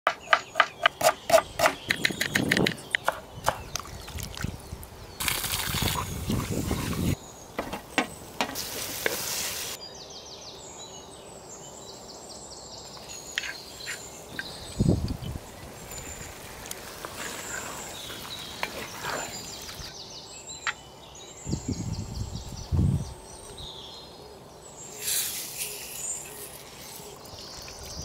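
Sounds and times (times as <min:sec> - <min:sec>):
onion sizzling in hot oil: 0:08.5 - 0:09.8.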